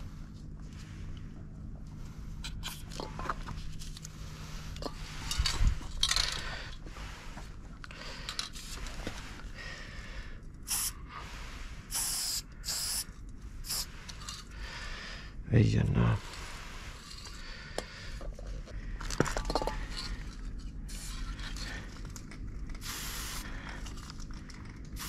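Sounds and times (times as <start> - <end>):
rustles and clicks of cans: 2.4 - 9.6, 17.0 - 25.0
aerosol spray can hissing: 10.7 - 11.0, 11.9 - 13.9, 22.8 - 23.5.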